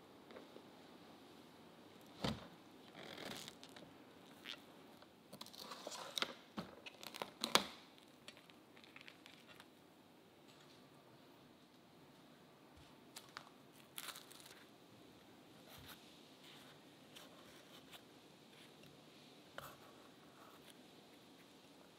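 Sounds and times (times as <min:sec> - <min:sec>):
cling film crinkling and tearing: 0:05.4 - 0:09.7.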